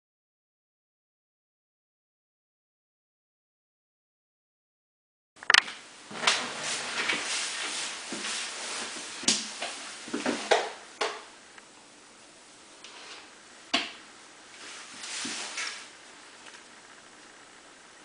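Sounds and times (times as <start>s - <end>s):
rustling on cutting board: 6.0s - 10.7s, 14.5s - 17.1s.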